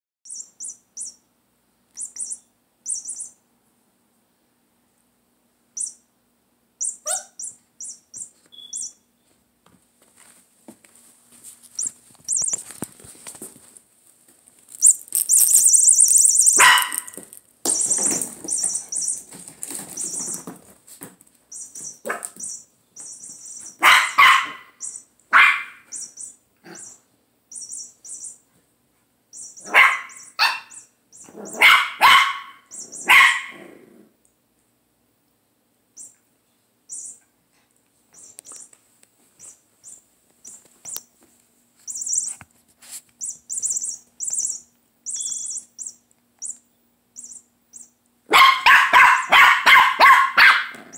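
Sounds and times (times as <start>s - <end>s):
puppies barking: 7.0s - 7.5s, 15.5s - 19.2s, 23.6s - 27.0s, 29.4s - 33.6s, 48.3s - 50.9s.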